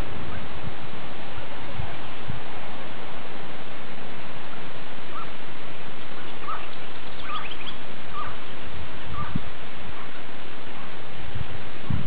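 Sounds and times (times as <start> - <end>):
bird chirping: 6.0 - 9.4.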